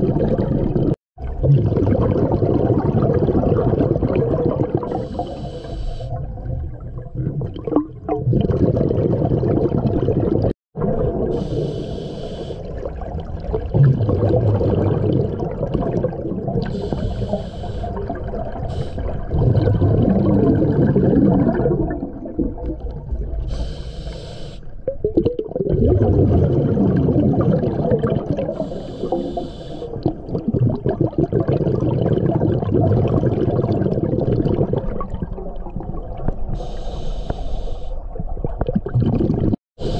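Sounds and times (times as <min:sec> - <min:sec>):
bubbling exhaled air: 0:00.0 - 0:39.9
hissing regulator inhalations: 0:04.9 - 0:06.2, 0:11.4 - 0:12.7, 0:16.7 - 0:18.0, 0:18.6 - 0:19.2, 0:23.5 - 0:24.7, 0:28.5 - 0:30.0, 0:36.6 - 0:38.0.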